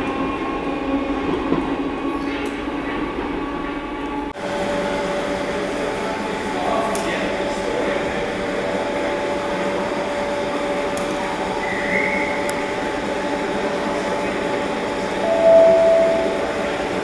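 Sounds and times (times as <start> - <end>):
short loud tone: 15.2 - 16.6.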